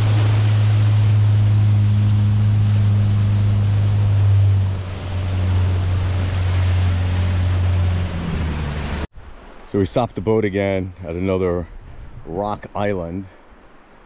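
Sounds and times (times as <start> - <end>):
outboard motor running: 0.0 - 9.1
water rushing past hull: 0.0 - 14.0.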